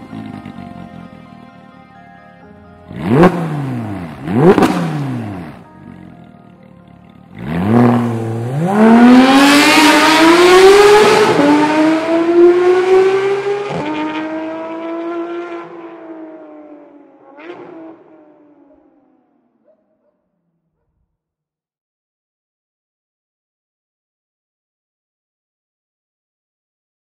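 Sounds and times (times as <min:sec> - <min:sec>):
sports car engine revving: 0:00.0 - 0:01.0, 0:02.9 - 0:06.1, 0:07.0 - 0:18.7
car accelerating away with upshifts: 0:00.0 - 0:01.4, 0:02.8 - 0:20.1.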